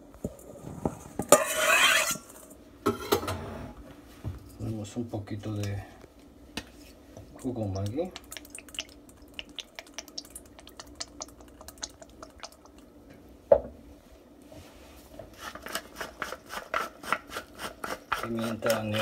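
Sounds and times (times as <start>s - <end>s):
sauce dripping into metal bowl: 7.4s - 13.0s.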